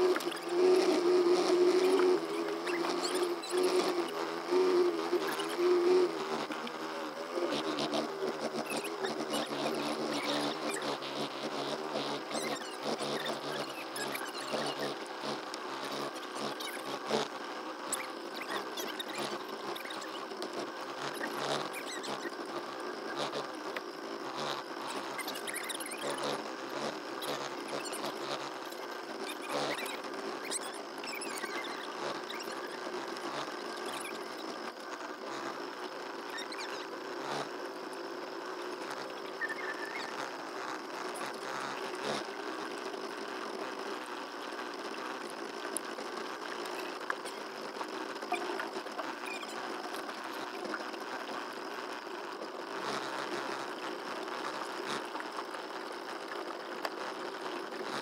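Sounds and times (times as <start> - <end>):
small boat motor buzzing: 0.0 - 58.0.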